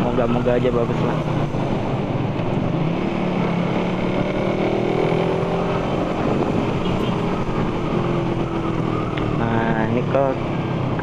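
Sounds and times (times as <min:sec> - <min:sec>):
motorcycle engine accelerating: 0:00.9 - 0:11.0
wind noise on microphone: 0:01.3 - 0:09.9.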